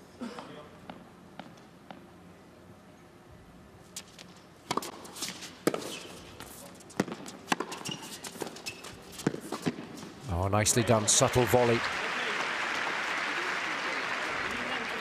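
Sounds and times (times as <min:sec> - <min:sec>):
tennis ball struck by rackets: 0:04.7 - 0:06.0, 0:07.0 - 0:08.5.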